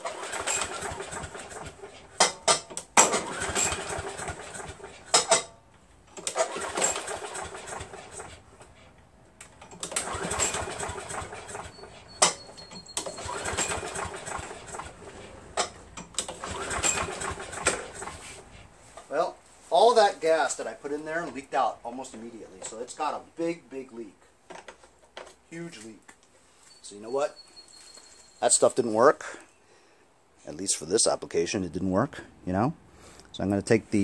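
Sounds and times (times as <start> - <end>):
engine rope pull-start cranking: 0.0 - 18.7.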